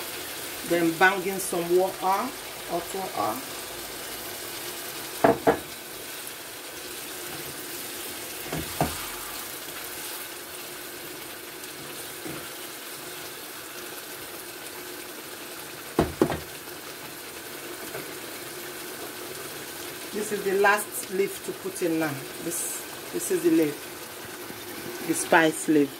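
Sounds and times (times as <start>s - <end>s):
sauce sizzling in a frying pan: 0.0s - 25.9s.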